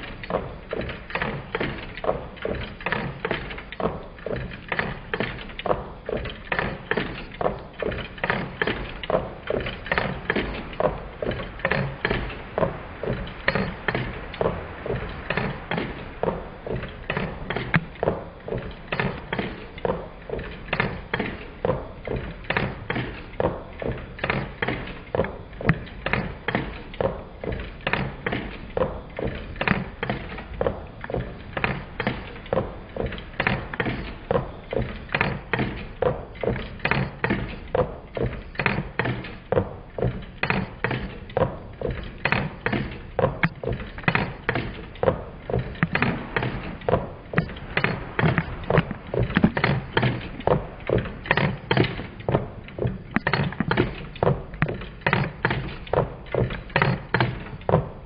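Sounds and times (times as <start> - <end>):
stirling engine knocking: 42.2 - 58.0.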